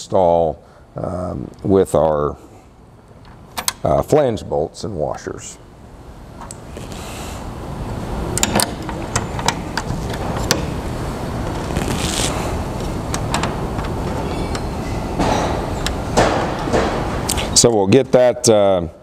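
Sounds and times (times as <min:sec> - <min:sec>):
steady low rumble: 0:04.3 - 0:17.4.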